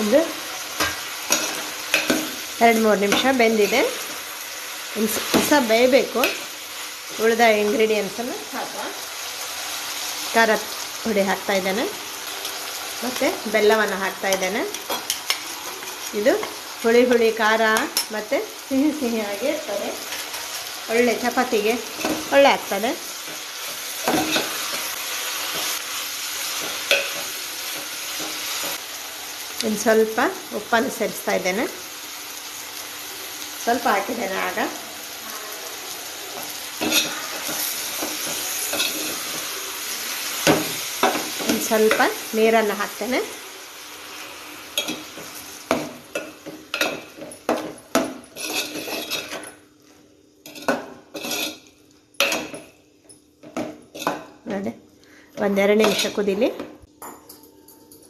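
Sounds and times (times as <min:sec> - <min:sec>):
curry sizzling in a pot: 0:00.0 - 0:56.7
ladle scraping metal pot: 0:48.4 - 0:49.4.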